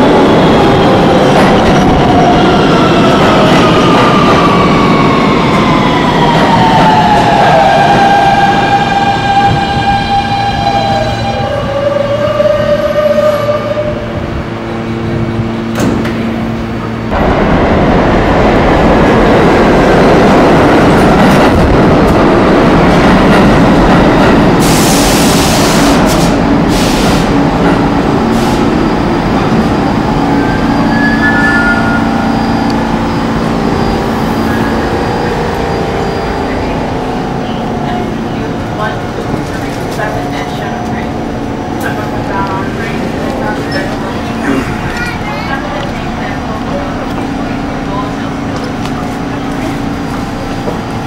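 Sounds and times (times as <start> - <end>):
train wheels rumbling on track: 0.0 - 51.0
high squeal: 30.2 - 36.9.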